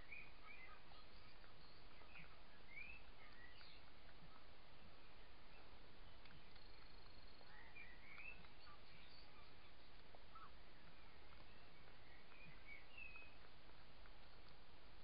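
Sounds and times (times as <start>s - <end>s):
faint short chirping calls: 0.0s - 13.5s
faint ticks: 5.5s - 9.0s, 9.7s - 15.0s.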